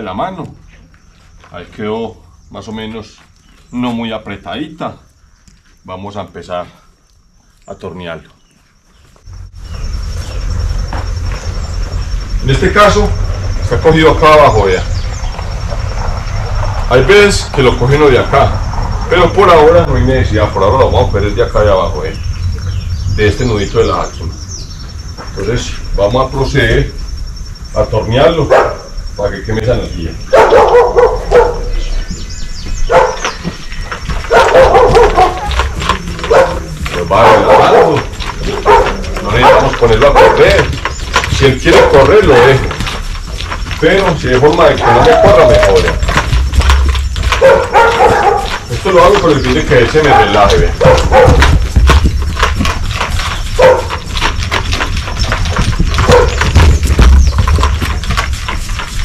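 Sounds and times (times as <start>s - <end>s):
hooves knocking on ground: 0.0s - 59.0s
dog barking: 28.4s - 28.9s, 30.3s - 31.9s, 32.8s - 33.4s, 34.2s - 40.5s, 47.2s - 48.7s, 49.8s - 51.7s, 53.6s - 54.0s, 56.0s - 56.5s.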